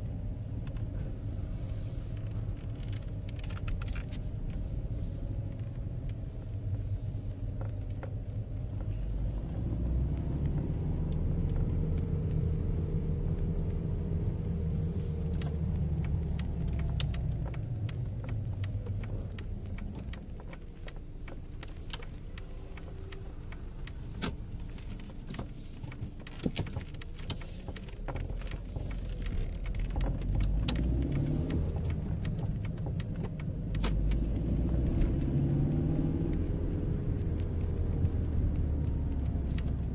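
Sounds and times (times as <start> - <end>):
car engine and road noise: 0.0 - 39.9
sharp clicks: 15.2 - 39.9.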